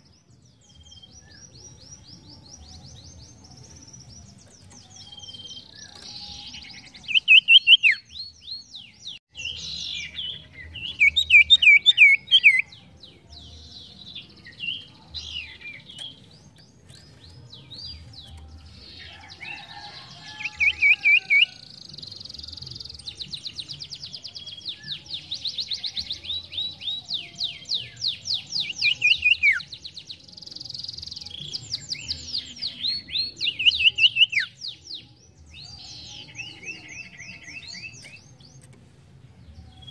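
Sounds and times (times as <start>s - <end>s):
songbird chirping trills: 0.0s - 39.9s.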